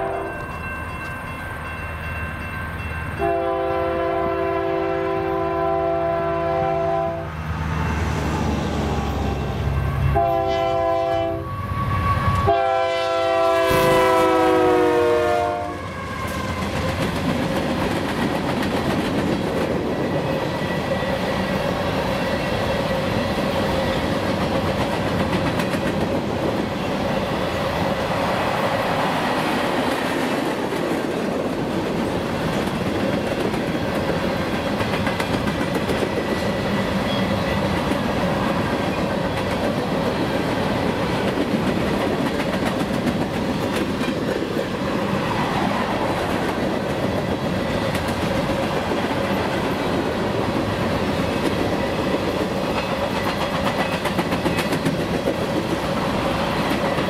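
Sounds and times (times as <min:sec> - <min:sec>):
locomotive air horn blasts: 0:00.0 - 0:00.3, 0:03.2 - 0:07.3, 0:09.8 - 0:16.2
freight cars rumbling on rails: 0:13.3 - 0:57.0.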